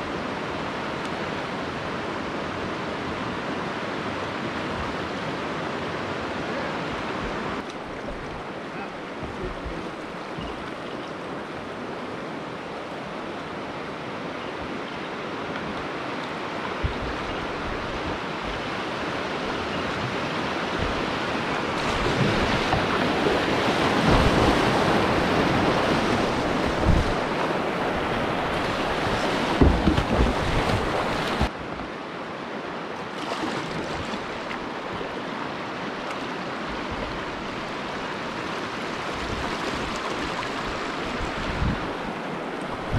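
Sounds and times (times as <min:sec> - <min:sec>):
whitewater river rushing: 0:00.0 - 0:42.9
sharp knocks: 0:29.6 - 0:30.8.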